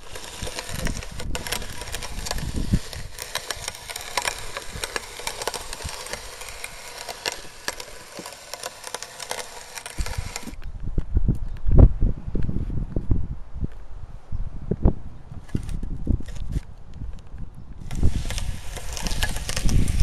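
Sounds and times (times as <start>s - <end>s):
meat grinder crunching gritty material: 0.0s - 10.6s, 17.8s - 20.0s.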